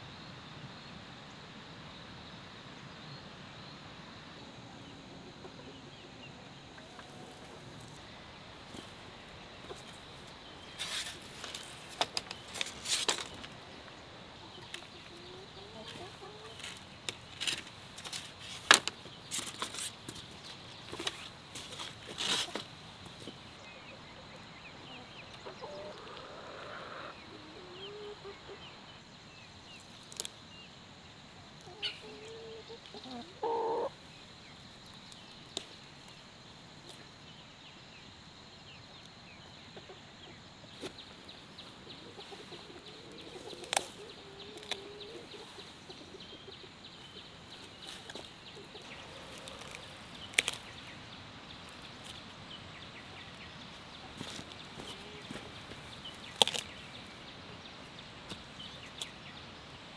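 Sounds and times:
chickens clucking: 5.0 - 8.0, 8.6 - 20.2, 20.8 - 28.8, 31.6 - 34.0, 39.7 - 51.0, 53.0 - 56.7.

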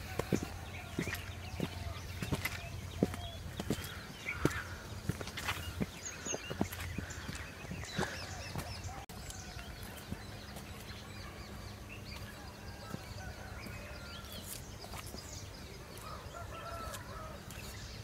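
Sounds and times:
bird chirps and calls: 0.0 - 18.0
outdoor background noise: 0.0 - 18.0.

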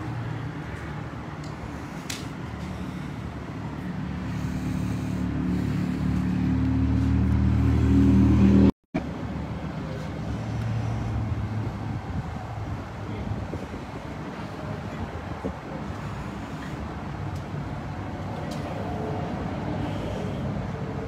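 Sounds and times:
vehicle engine running: 0.0 - 13.6
quieter engine sound: 0.0 - 21.0.

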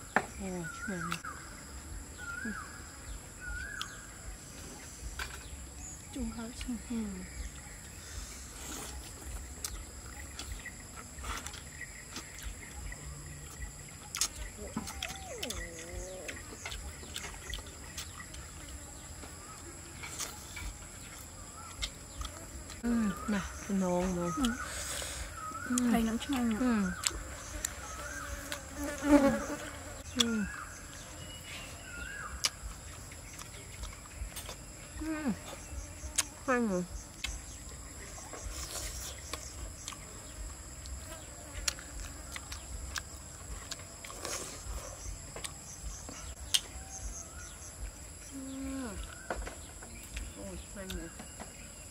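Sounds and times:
insects chirring: 0.0 - 51.9
murmuring voice: 14.6 - 16.4.

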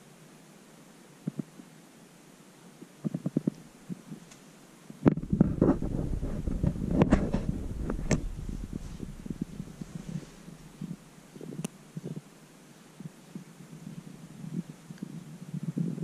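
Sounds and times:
sharp clicks and rustles: 5.1 - 12.2
cat purring: 5.1 - 12.4.

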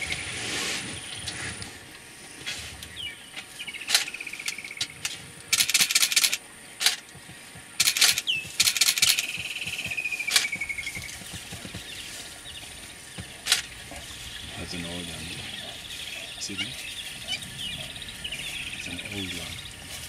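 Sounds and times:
sharp clicks: 3.8 - 11.9, 13.3 - 13.7.

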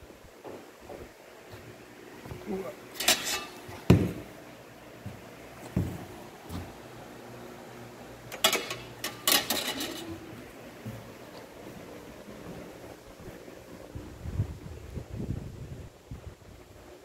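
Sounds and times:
metallic clatter and scraping: 2.9 - 3.8, 8.4 - 10.2.

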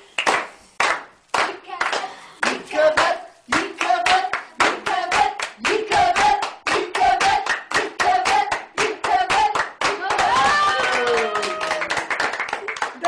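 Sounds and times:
group clapping in rhythm: 0.0 - 13.0
voices singing along: 2.4 - 10.2.

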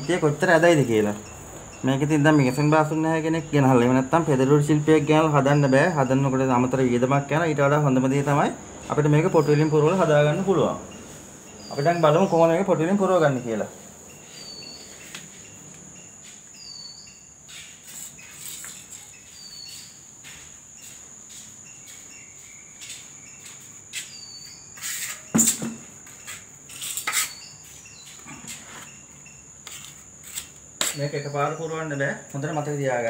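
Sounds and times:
high-pitched insect trill: 0.0 - 33.0
short insect chirp: 8.6 - 33.0.

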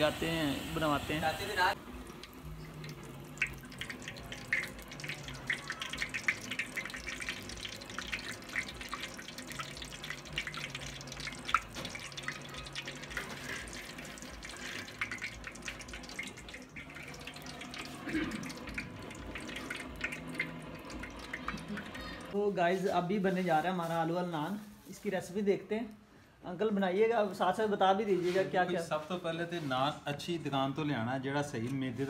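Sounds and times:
hot oil crackling and popping: 0.0 - 22.4
oil dripping: 0.0 - 22.4.

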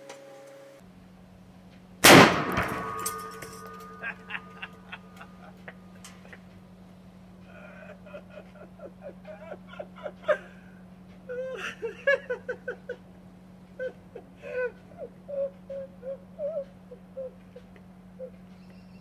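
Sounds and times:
steady low hum: 0.0 - 19.0
explosive blast: 2.0 - 3.1
animal whimpering calls: 13.8 - 19.0.

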